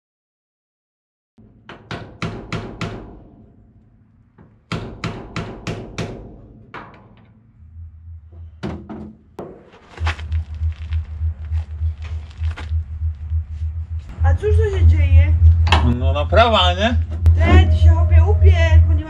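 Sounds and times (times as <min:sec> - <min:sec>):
banging on steel van cab: 0:01.4 - 0:07.8
low thumping: 0:01.4 - 0:19.0.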